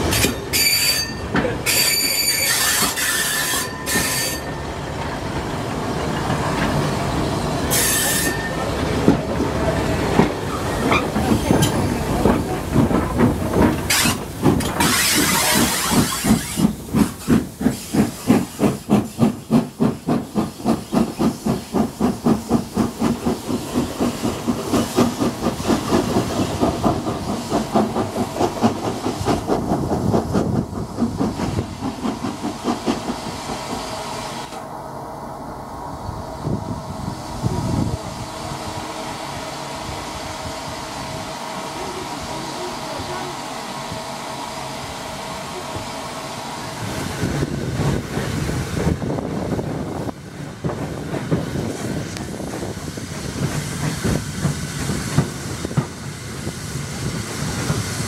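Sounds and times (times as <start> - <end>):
train wheel squeals: 0.0 - 4.8, 6.0 - 8.9, 10.5 - 12.0, 13.9 - 21.9
rhythmic steam locomotive beat: 8.4 - 34.6, 36.4 - 58.0
steam hiss: 9.8 - 34.6, 36.0 - 58.0.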